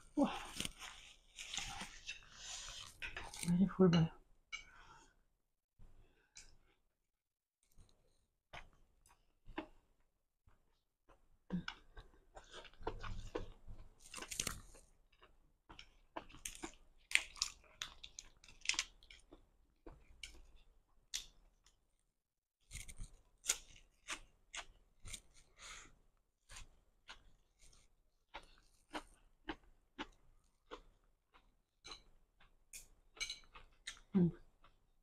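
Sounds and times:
chewing and crunching food: 0:00.0 - 0:03.6, 0:07.7 - 0:21.8, 0:22.6 - 0:25.7, 0:26.4 - 0:35.0
biting crisp lettuce: 0:14.0 - 0:14.8.

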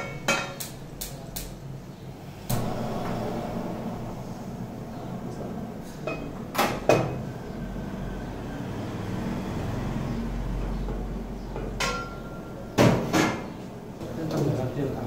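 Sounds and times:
steady low hum: 0:00.0 - 0:14.2
cookware clanking on metal range: 0:11.8 - 0:13.5.

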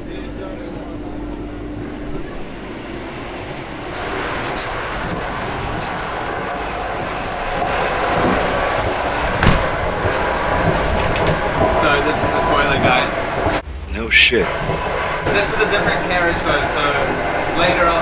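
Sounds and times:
train rumble and rattle: 0:00.0 - 0:18.0.

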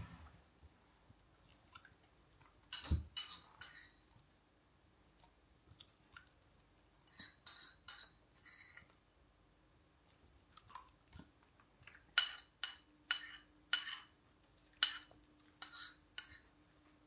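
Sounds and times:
metal spoon clinking: 0:02.7 - 0:04.1, 0:07.1 - 0:08.8, 0:12.2 - 0:14.1, 0:14.8 - 0:16.5.

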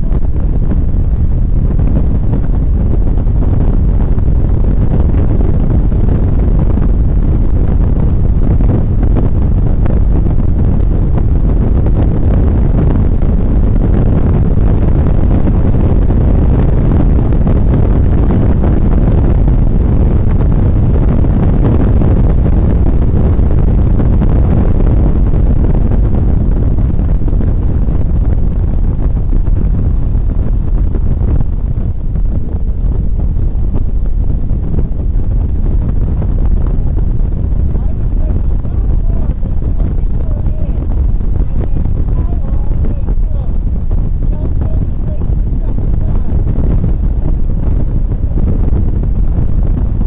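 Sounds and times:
car engine rumble: 0:00.0 - 0:50.0
wind buffeting microphone: 0:00.0 - 0:50.0
road noise in car cabin: 0:37.5 - 0:48.5.

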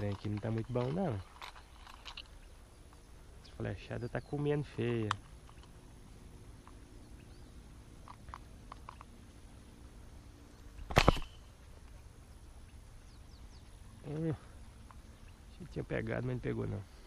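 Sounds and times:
faint ticks: 0:04.7 - 0:09.3, 0:14.2 - 0:15.4
arrow snap and splash: 0:10.9 - 0:11.3.

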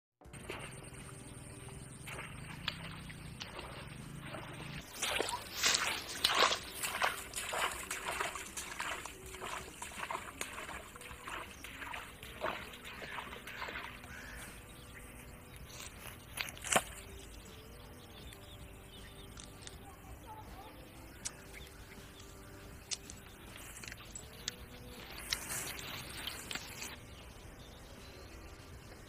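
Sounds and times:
footsteps through grass and brush: 0:00.4 - 0:17.2, 0:21.3 - 0:27.0.

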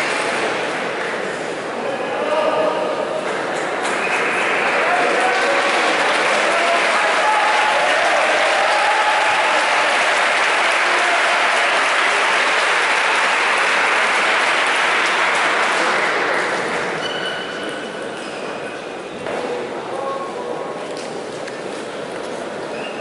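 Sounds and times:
audience applauding: 0:03.9 - 0:17.0.

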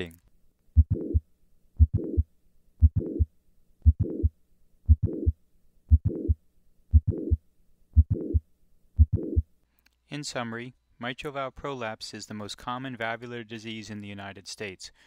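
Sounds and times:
heartbeat with click and murmur: 0:00.8 - 0:07.4, 0:08.0 - 0:08.4, 0:09.0 - 0:09.5.

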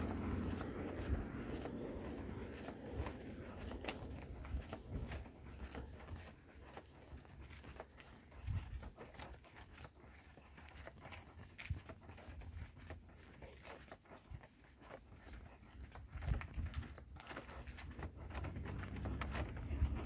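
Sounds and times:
low traffic rumble: 0:00.0 - 0:08.7, 0:16.4 - 0:20.0
footsteps on pavement: 0:00.0 - 0:20.0.

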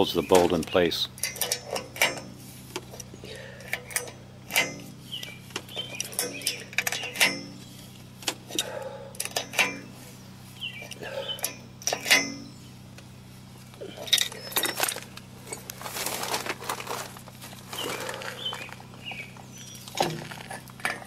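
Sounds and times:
wrench clinking on metal: 0:01.2 - 0:02.3, 0:02.9 - 0:05.0, 0:05.7 - 0:07.7, 0:08.5 - 0:09.9, 0:10.9 - 0:12.5
rustling: 0:14.2 - 0:19.0.

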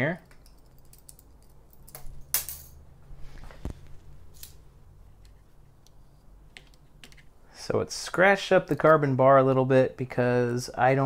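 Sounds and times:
metal tool clinking: 0:00.2 - 0:02.8.

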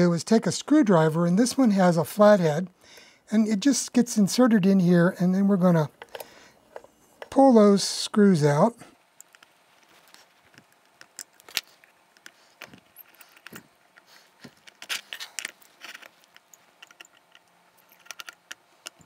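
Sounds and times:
metal parts handled: 0:09.2 - 0:19.0
screwdriver clicking and scraping: 0:10.3 - 0:19.0.

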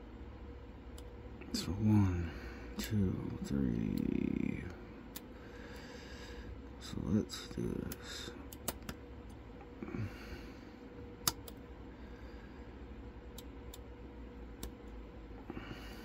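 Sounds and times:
faint steady hum: 0:00.0 - 0:16.0
soft breath: 0:05.3 - 0:06.6, 0:11.8 - 0:12.9, 0:15.4 - 0:16.0.

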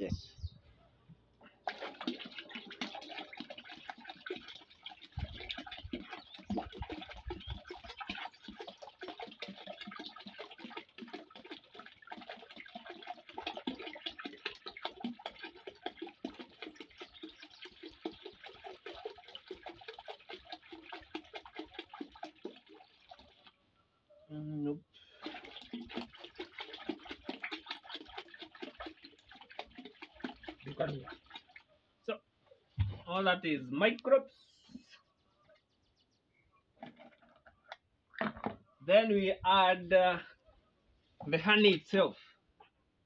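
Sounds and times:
liquid pouring into water: 0:01.6 - 0:23.6, 0:25.1 - 0:31.8.

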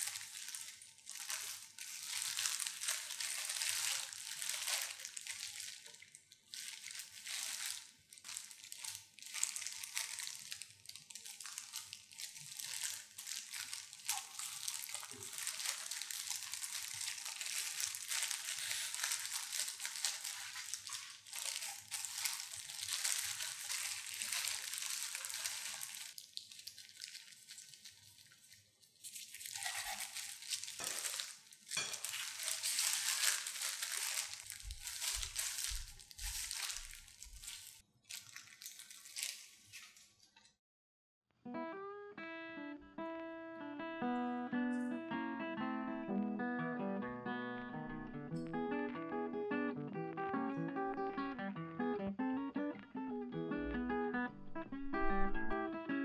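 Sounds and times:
plastic gloves crinkling: 0:00.0 - 0:40.5.

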